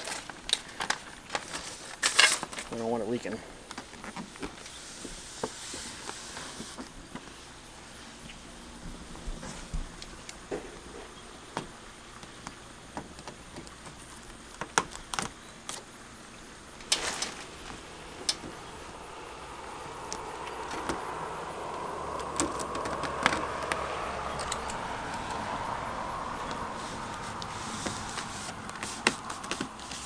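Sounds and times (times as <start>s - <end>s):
rustle: 0.0s - 30.0s
steady drone: 16.6s - 30.0s.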